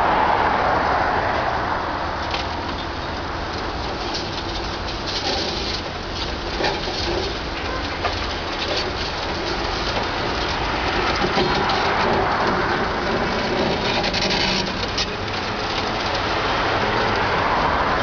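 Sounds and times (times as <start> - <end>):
rubble falling down a wall: 3.6 - 17.9.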